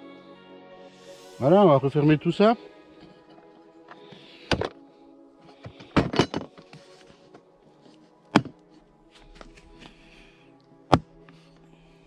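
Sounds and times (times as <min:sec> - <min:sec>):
background music: 0:00.0 - 0:12.0
plastic case latches clicking shut: 0:04.5 - 0:04.8.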